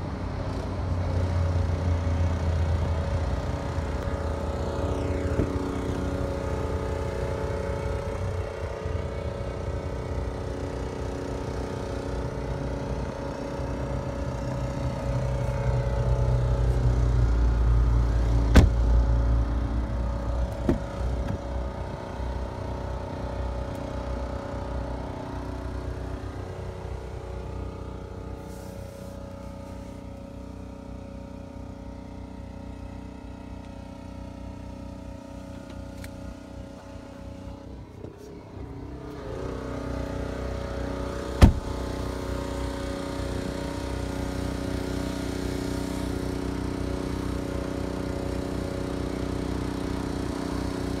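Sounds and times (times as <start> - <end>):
diesel car engine idling: 0.0 - 39.1, 40.0 - 51.0
sharp thump: 18.5 - 18.9, 41.4 - 41.7.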